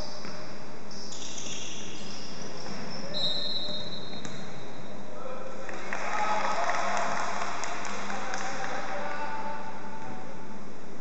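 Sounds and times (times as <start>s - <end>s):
sneakers squeaking: 0.0s - 5.0s
echoing sports hall noise: 0.0s - 11.0s.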